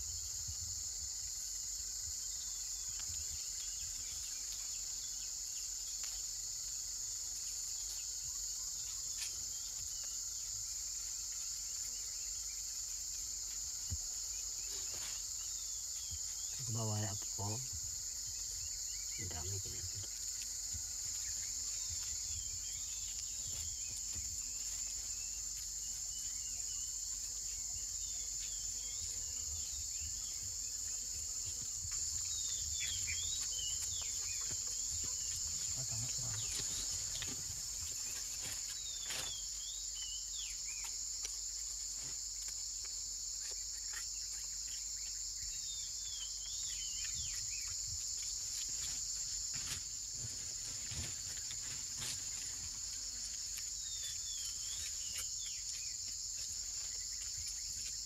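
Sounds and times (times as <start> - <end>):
insect chorus buzzing: 0.0 - 58.0.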